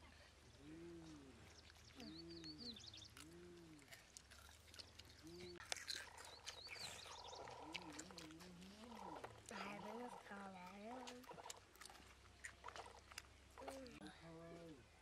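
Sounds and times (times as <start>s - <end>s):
small birds chirping: 0.0s - 15.0s
dove cooing: 0.6s - 3.9s.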